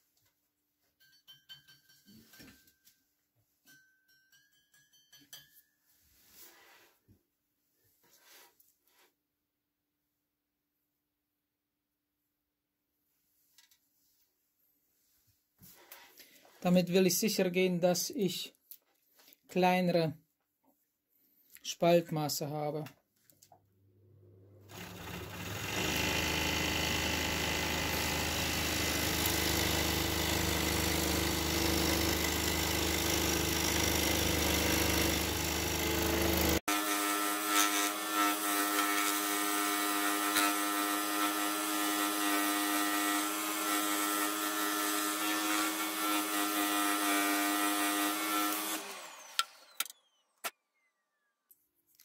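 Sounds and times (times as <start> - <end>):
scroll saw cutting wood: 24.6 - 51.2.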